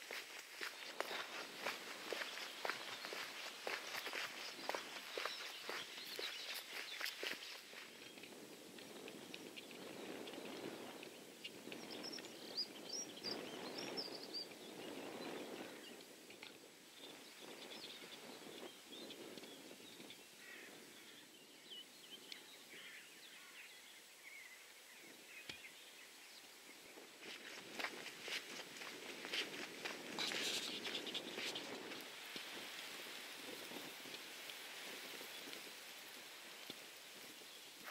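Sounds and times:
birds chirping: 0.0s - 16.2s, 16.9s - 37.9s.

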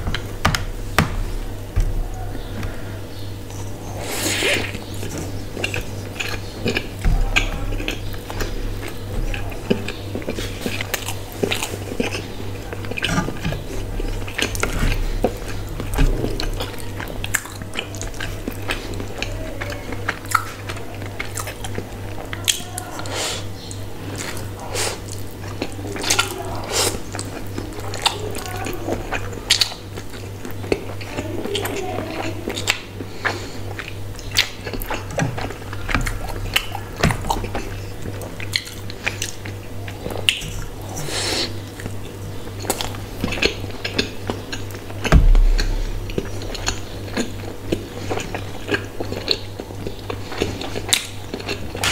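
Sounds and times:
steady low hum: 0.0s - 22.3s, 33.0s - 51.9s
person chewing food: 0.0s - 51.9s.

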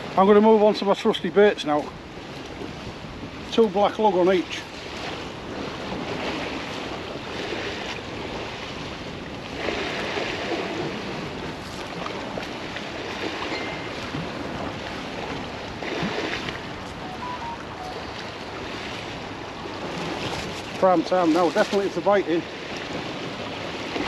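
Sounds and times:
waves washing against bank: 0.0s - 24.0s.

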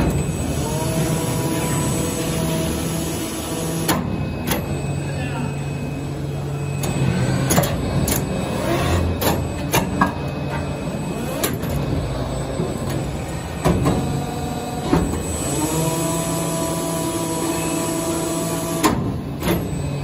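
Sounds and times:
machine humming: 0.0s - 20.0s
steady multi-pitched whine: 0.0s - 20.0s.

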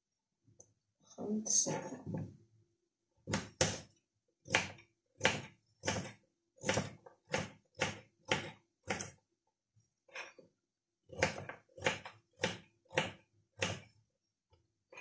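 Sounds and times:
knife chopping on wooden board: 3.2s - 9.2s, 11.1s - 13.9s.

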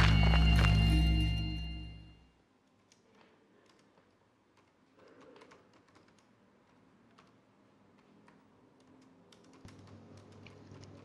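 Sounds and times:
faint keyboard typing: 2.6s - 11.0s.

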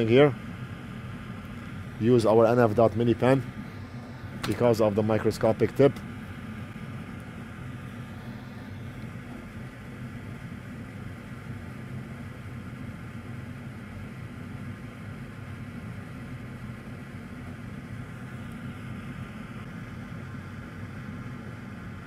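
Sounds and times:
steady low machine hum: 0.0s - 22.0s.

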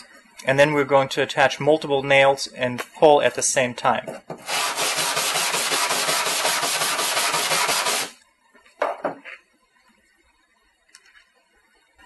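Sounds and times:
wire brush scrubbing metal: 4.4s - 8.1s.

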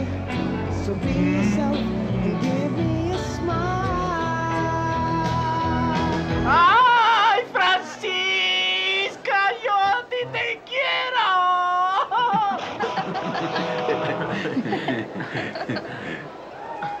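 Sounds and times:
man singing unaccompanied: 0.0s - 12.4s.

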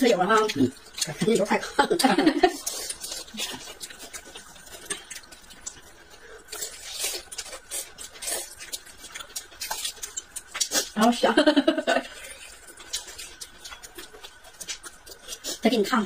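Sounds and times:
chewing mouth noises: 2.5s - 11.0s, 12.0s - 15.9s.

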